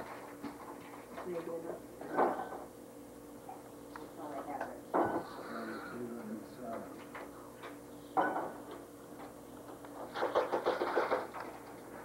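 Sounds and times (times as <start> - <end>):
utensils and dishes clattering: 10.0 - 11.7.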